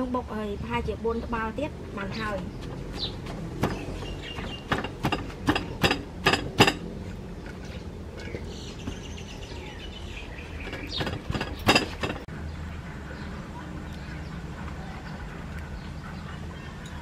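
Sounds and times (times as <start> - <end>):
pestle pounding in stone mortar: 2.9 - 6.9, 10.6 - 12.3
faint bird chirping: 7.6 - 17.0.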